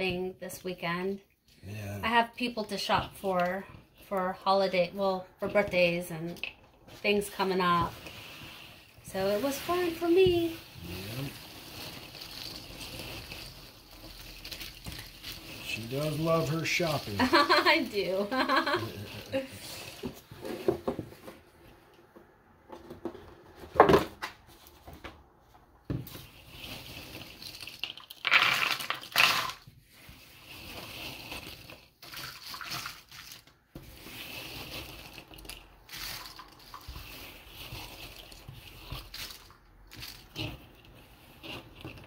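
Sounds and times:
puzzle pieces rustling and clattering: 7.9s - 20.1s, 26.4s - 42.0s.

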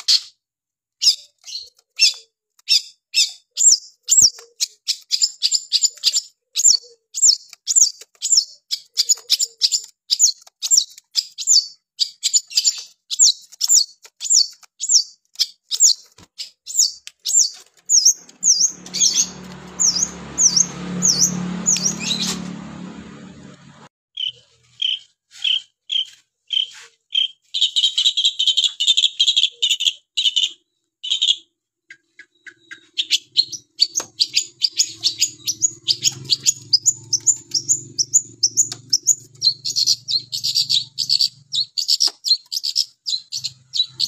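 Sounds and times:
bird chirping high sharp notes: 16.7s - 31.4s, 32.0s - 44.0s.

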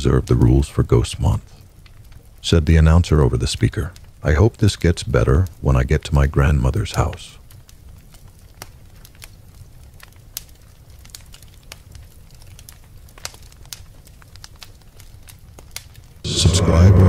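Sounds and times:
campfire crackling: 0.0s - 17.0s
low steady rumble: 16.3s - 17.0s.

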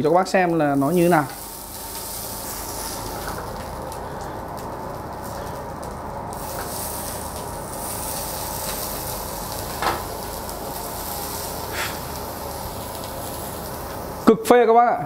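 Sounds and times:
meat sizzling on a grill: 0.4s - 14.6s.

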